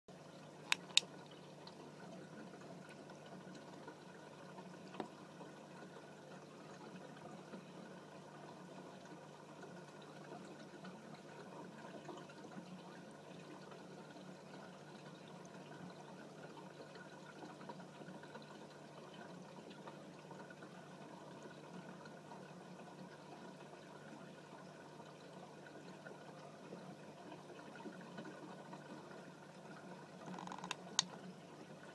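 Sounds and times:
aquarium water running: 0.1 - 31.9
sharp clicks: 0.7 - 1.1.

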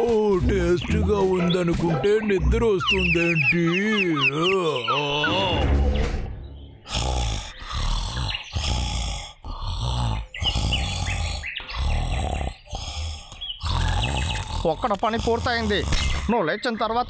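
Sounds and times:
cartoon bear snoring: 6.8 - 16.3.

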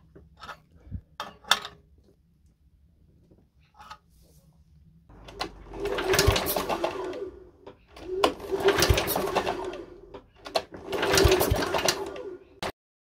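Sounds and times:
starter rope pulled: 5.1 - 12.5
engine turning over: 5.1 - 12.7.

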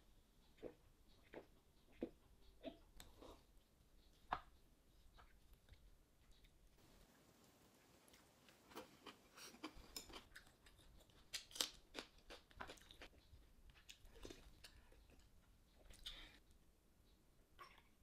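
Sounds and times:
eating clicks and crunches: 8.7 - 16.4.

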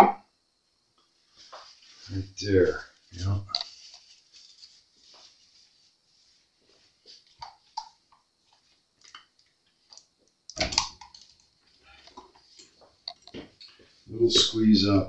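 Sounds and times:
paper towel rustling: 1.2 - 7.8.

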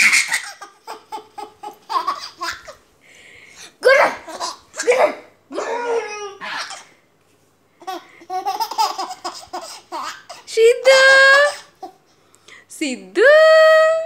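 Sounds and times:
baby laughing: 0.0 - 2.8, 4.0 - 6.9, 7.8 - 12.0.

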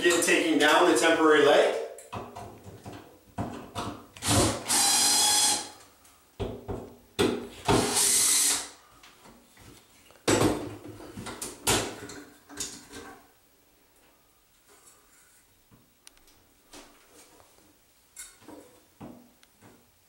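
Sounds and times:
cordless drill whirring: 4.2 - 5.8, 7.8 - 8.8.

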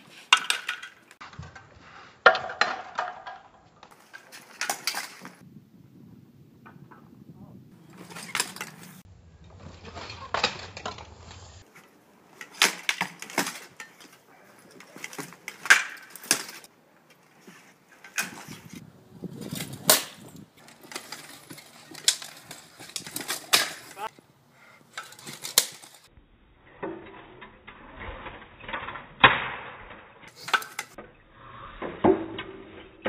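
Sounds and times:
swords clashing on shield and armour: 19.9 - 24.1.

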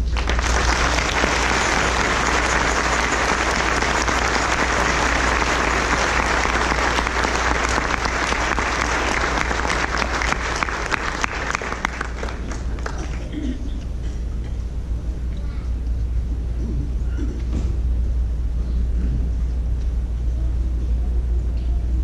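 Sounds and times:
congregation applauding: 0.0 - 13.5
steady low hum: 0.0 - 22.0.

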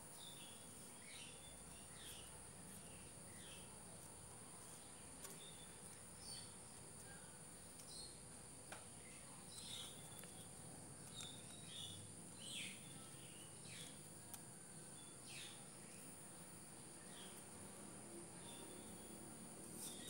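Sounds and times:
insect drone: 11.2 - 20.0.

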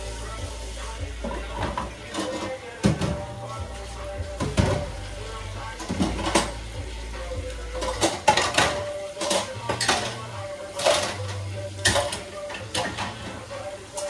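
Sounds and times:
dishes and cutlery clinking: 1.2 - 3.3, 5.7 - 6.6, 7.7 - 14.0.

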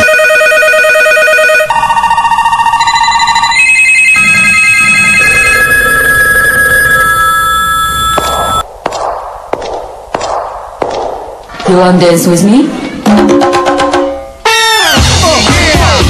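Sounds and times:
telephones ringing: 0.0 - 8.7.

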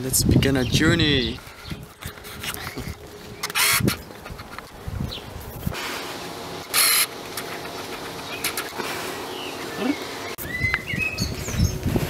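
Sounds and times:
birds chirping: 0.4 - 5.4, 6.8 - 11.9.

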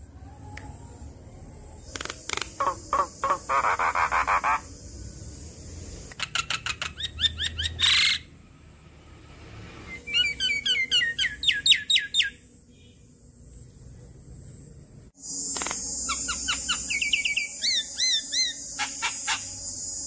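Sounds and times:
bird chirping: 0.6 - 8.4, 9.8 - 13.1, 15.4 - 20.0.

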